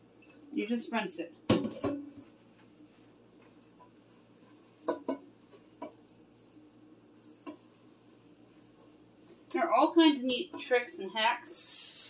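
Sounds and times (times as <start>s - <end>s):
pot knocking on steel sink: 4.8s - 6.0s.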